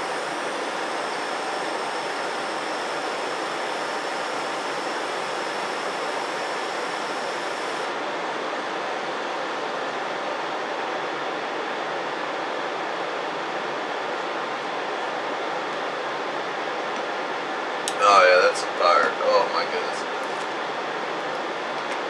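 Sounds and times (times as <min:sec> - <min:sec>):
butane torch flame hissing: 0:00.0 - 0:07.9.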